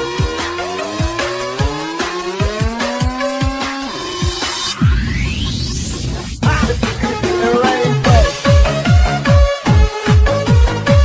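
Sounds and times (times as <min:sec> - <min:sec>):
deep kick drum beat: 0:06.4 - 0:11.0.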